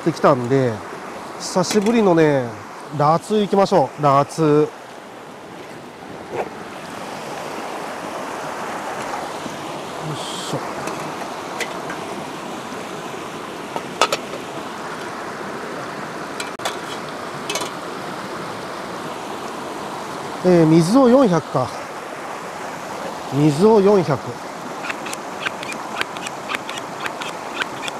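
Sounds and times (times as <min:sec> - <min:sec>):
river rushing over rocks: 0:00.0 - 0:27.9.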